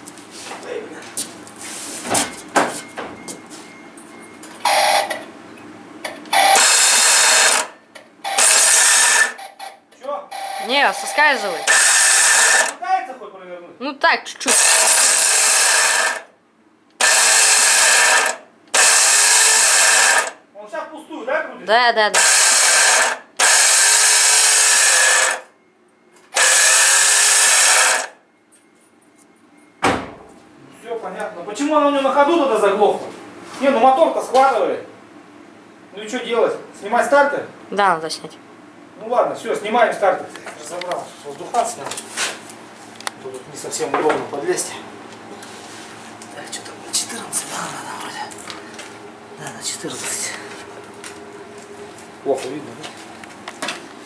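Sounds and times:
starter motor whirring: 6.3 - 9.7, 10.3 - 12.8, 14.5 - 16.3, 16.9 - 20.4, 22.2 - 25.4, 26.3 - 28.1.

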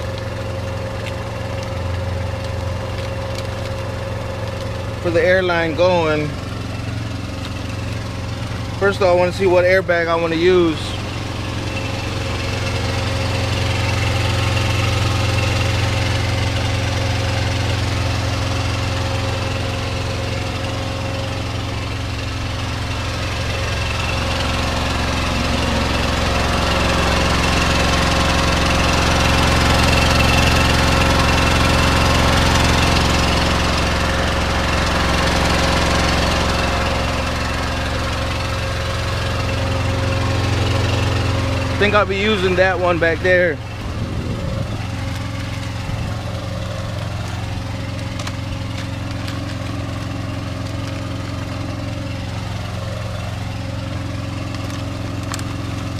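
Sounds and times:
diesel truck engine idling: 0.0 - 55.9.

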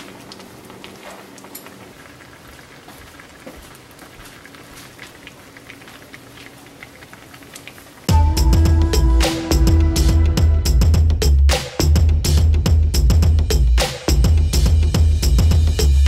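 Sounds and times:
stew bubbling at a boil: 0.0 - 8.1.

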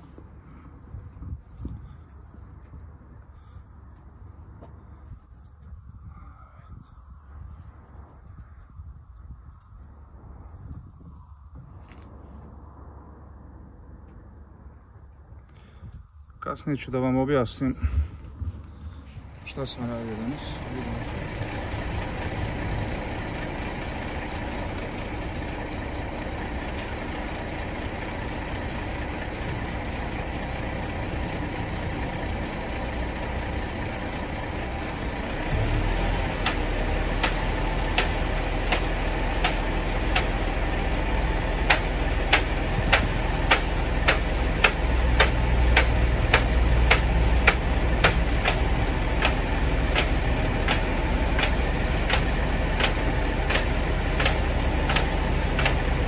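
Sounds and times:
diesel truck engine idling: 17.3 - 56.0
sharp clicks: 35.6 - 56.0.

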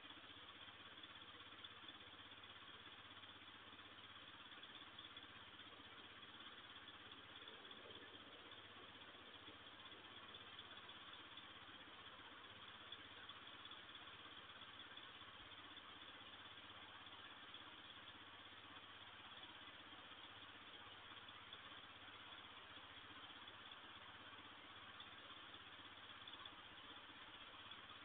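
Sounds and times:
faint low hum: 0.0 - 28.0.

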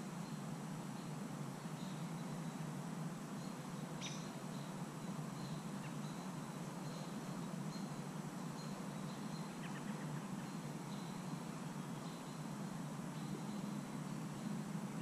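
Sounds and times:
steady low hiss: 0.0 - 15.0.

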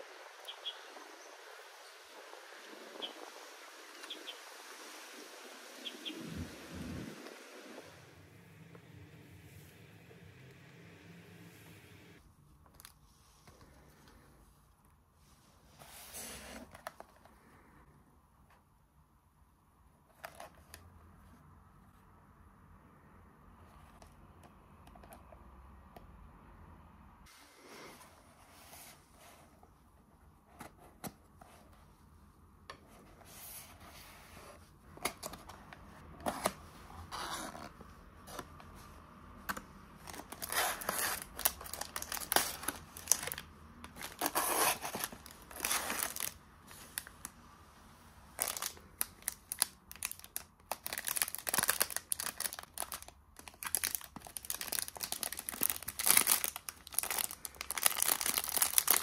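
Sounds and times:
plastic wrapper crinkling and tearing: 40.0 - 47.3, 48.4 - 59.0.

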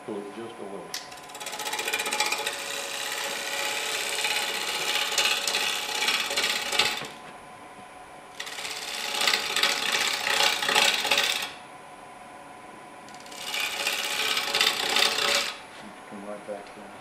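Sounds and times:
lathe humming: 0.6 - 7.3, 8.3 - 11.6, 13.0 - 16.1
gouge cutting wood on a lathe: 1.1 - 7.2, 8.4 - 11.6, 13.1 - 15.6.

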